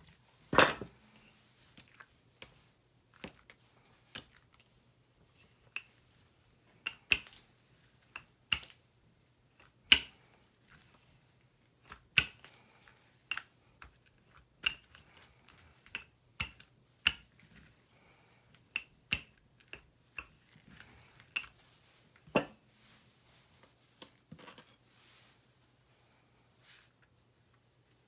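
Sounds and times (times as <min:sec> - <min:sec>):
soft rustle: 0:20.4 - 0:28.0.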